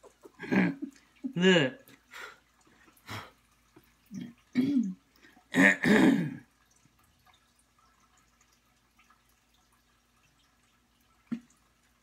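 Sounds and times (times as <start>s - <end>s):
person clearing throat: 4.2s - 6.5s.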